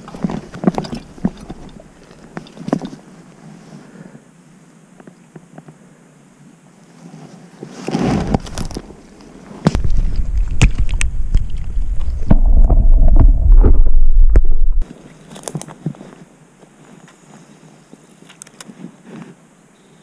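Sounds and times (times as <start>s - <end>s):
water sloshing and splashing: 9.7s - 14.8s
loud low rumble: 9.8s - 14.8s.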